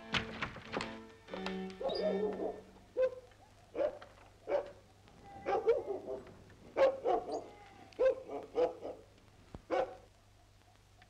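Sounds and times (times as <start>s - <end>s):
dog barking: 1.8s - 4.8s, 5.4s - 9.1s, 9.7s - 10.1s.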